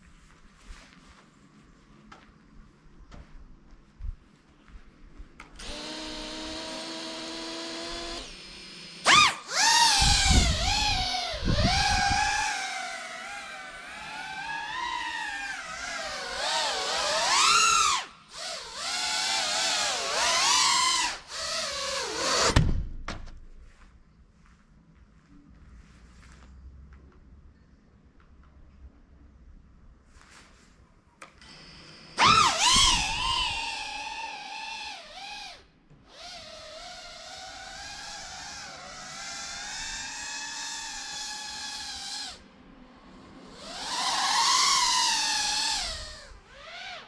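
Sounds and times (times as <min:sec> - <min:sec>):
drone motors whining: 0:05.6 - 0:22.6, 0:31.4 - 0:47.0.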